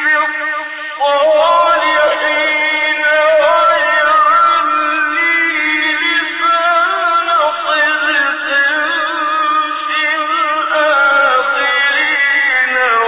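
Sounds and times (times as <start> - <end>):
man chanting melodically: 0.0 - 13.0.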